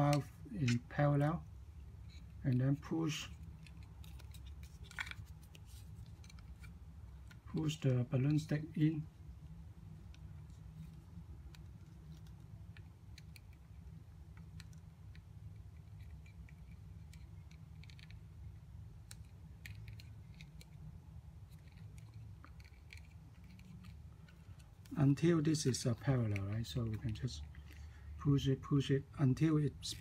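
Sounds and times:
steady low hum: 0.0s - 30.0s
light plastic clicks and scrapes: 2.0s - 8.6s, 19.0s - 28.0s.

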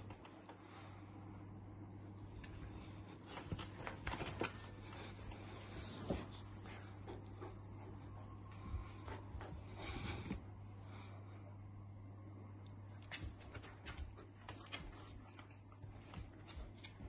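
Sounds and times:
puppy scuffs and clicks on floor: 0.0s - 0.7s, 2.2s - 10.5s, 12.9s - 17.0s
steady low hum: 0.0s - 17.0s.

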